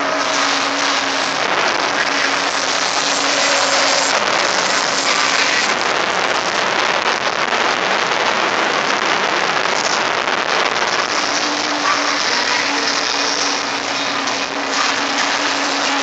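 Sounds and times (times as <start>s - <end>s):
jet engine rushing noise: 0.0s - 6.8s.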